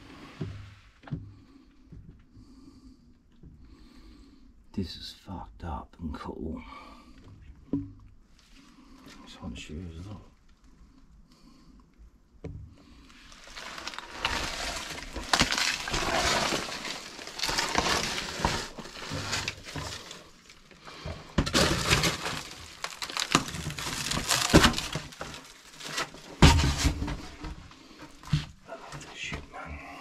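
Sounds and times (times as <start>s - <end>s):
footsteps crunching over rubble: 13.1s - 30.0s.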